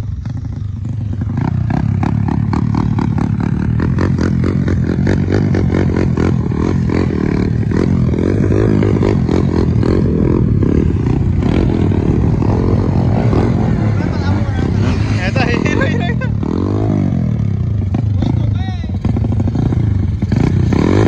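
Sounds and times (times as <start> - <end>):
motorcycle engines running rough: 0.0 - 21.0.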